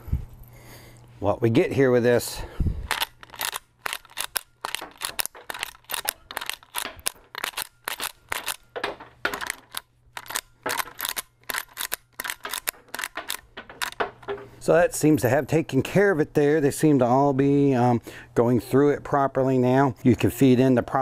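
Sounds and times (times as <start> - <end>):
rifle lever clacking: 2.9 - 14.4.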